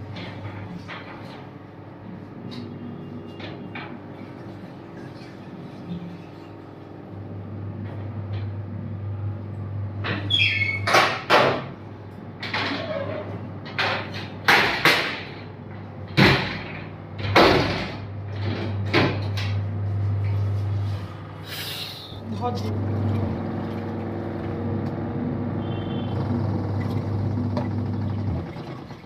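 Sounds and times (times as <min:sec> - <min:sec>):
metal door clanking and scraping: 0:12.4 - 0:21.0.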